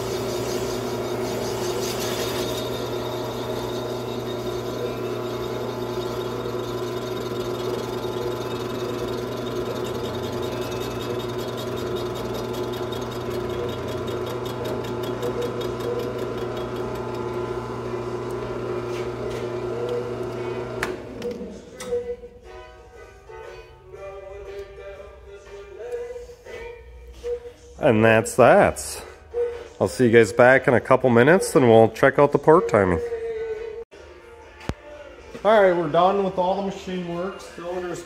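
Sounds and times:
cutting tool on metal: 0.0 - 17.3
metal lathe running: 0.0 - 21.7.

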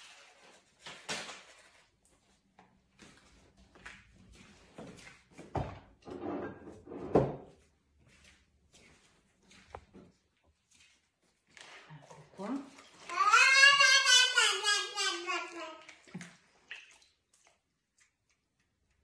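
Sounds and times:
knocks and thumps in a kitchen: 2.8 - 7.8.

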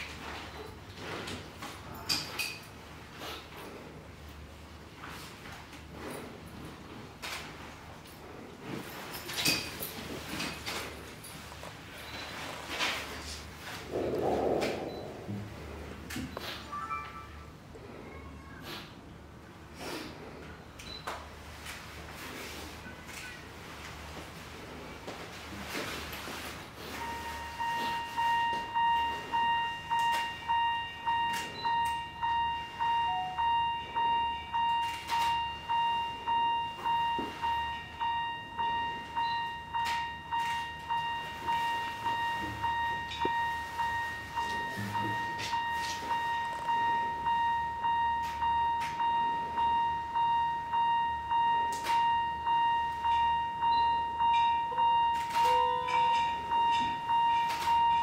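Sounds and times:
pulsing steady tone: 13.9 - 15.7, 27.0 - 58.0.

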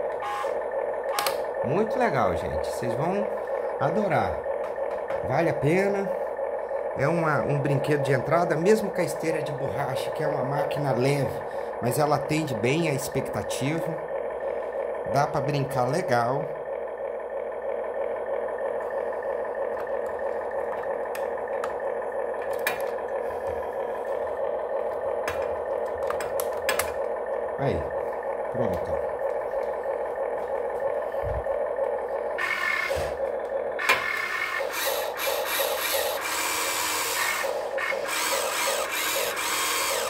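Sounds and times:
simulated engine idling hum: 0.0 - 40.0
sharp plastic clicks: 1.0 - 1.5, 25.3 - 27.2
toy motors and gears whirring: 32.3 - 40.0.

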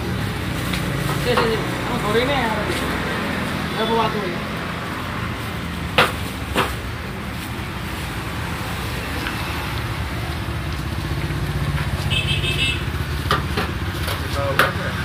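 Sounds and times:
vehicle engine running: 0.0 - 15.0
sharp knocks: 5.9 - 6.8.

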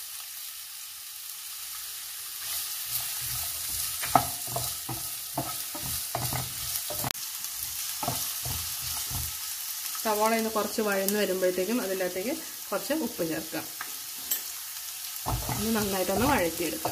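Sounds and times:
onions sizzling in oil: 0.0 - 16.9
wooden spatula scraping a pan: 2.4 - 7.1, 8.0 - 9.4, 15.2 - 16.9.

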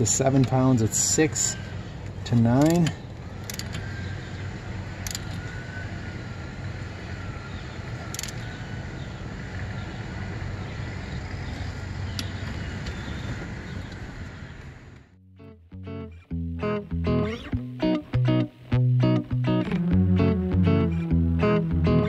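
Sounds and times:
torque wrench clicking: 2.6 - 3.9, 5.0 - 5.4, 8.1 - 8.4.

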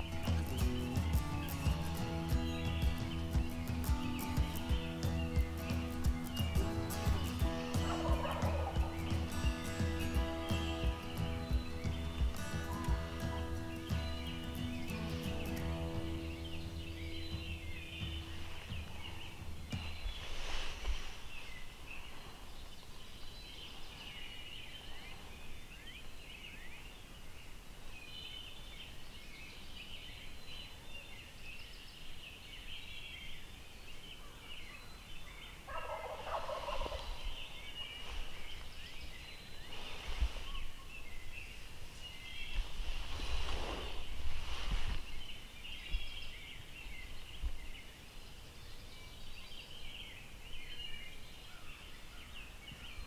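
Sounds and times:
small birds chirping: 0.0 - 53.0
turkeys gobbling: 7.0 - 10.0, 35.7 - 37.3.

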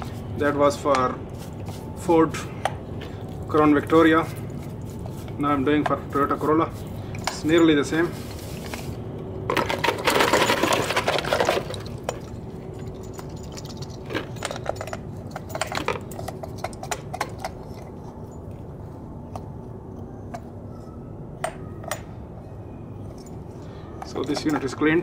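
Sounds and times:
metal parts clinking: 2.7 - 18.6, 23.0 - 25.0.

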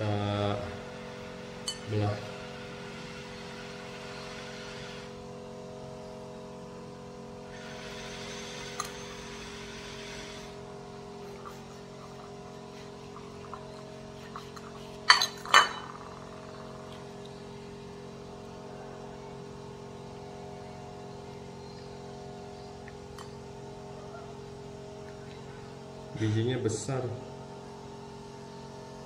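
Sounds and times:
steady low hum: 0.0 - 29.0
knife clinking on ceramic plate: 15.1 - 15.9.

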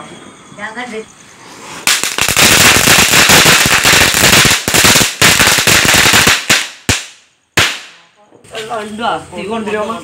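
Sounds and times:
firecrackers banging: 1.8 - 8.1.

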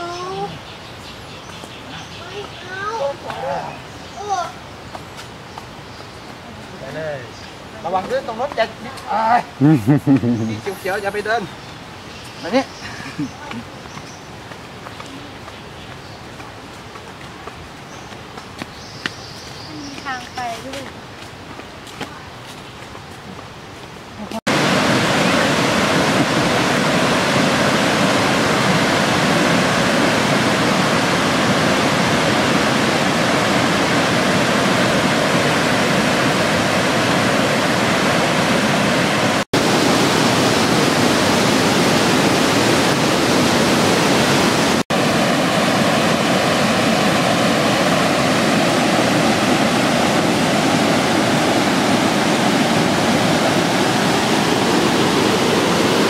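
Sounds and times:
water rushing over rock: 24.5 - 56.0.

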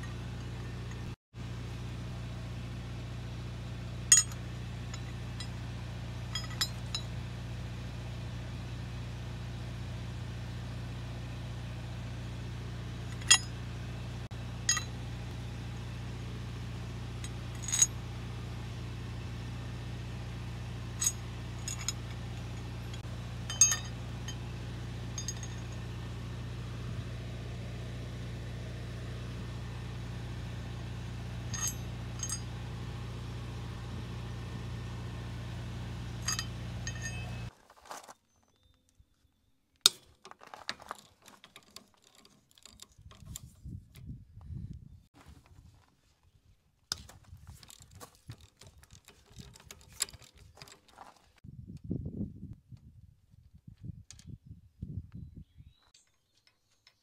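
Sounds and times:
steady low hum: 0.0 - 37.5
metal-on-metal clinks: 4.0 - 7.2, 13.0 - 13.7, 14.6 - 15.2, 17.2 - 18.1, 20.8 - 26.2, 31.3 - 32.8, 36.0 - 37.5.

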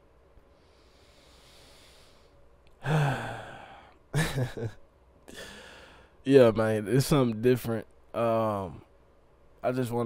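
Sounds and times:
faint breath in: 0.5 - 4.0, 5.3 - 6.2
man sighing: 2.8 - 4.0, 5.3 - 6.1
man chuckling: 4.1 - 4.8.

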